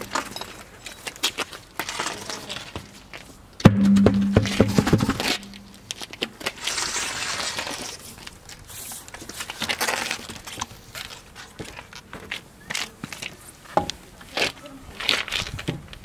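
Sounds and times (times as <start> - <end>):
scraping rustle: 4.6 - 12.1.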